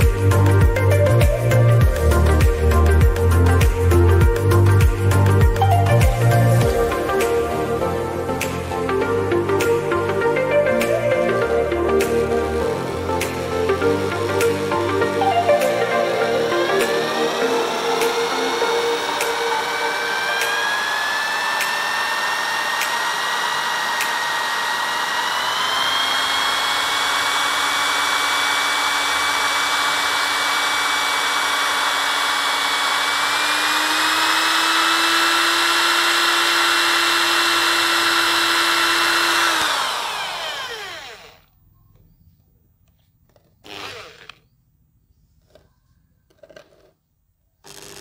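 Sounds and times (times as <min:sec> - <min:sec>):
electric drill spinning alternator: 0:00.0 - 0:41.6, 0:43.3 - 0:44.5, 0:47.6 - 0:48.0.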